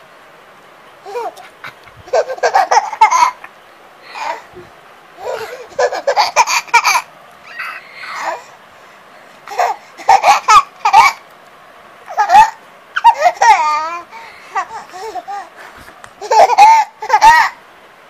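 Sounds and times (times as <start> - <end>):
baby laughing and babbling: 1.0 - 8.6, 9.4 - 11.2, 12.0 - 17.6.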